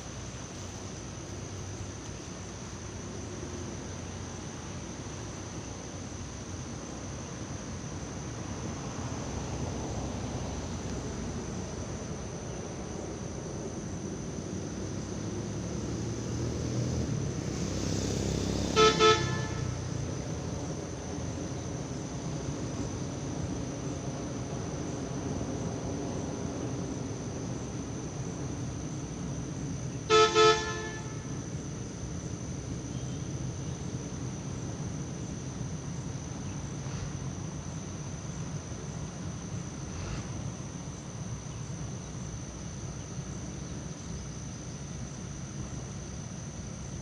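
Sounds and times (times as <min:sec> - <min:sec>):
road traffic rumble: 0:00.0 - 0:47.0
vehicle horn honks: 0:18.6 - 0:19.9, 0:30.1 - 0:31.4.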